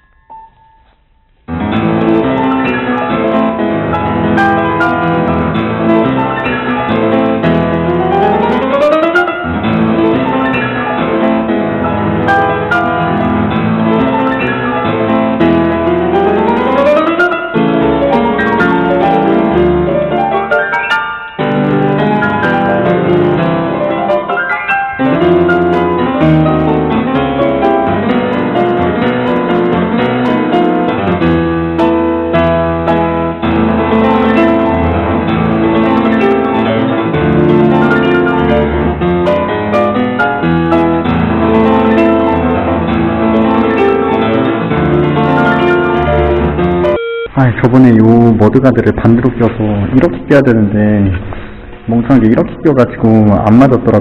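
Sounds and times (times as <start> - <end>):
piano music with rising runs: 1.5 - 47.0.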